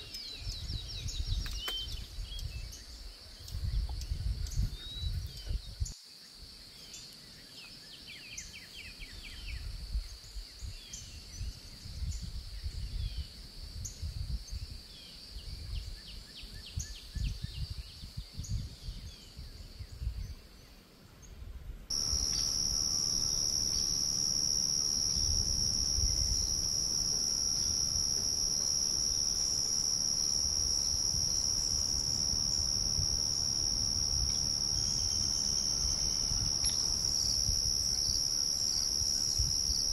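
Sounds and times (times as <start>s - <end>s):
bird chirps: 21.9s - 39.9s
higher-pitched insect trill: 21.9s - 39.9s
insects trilling: 21.9s - 39.9s.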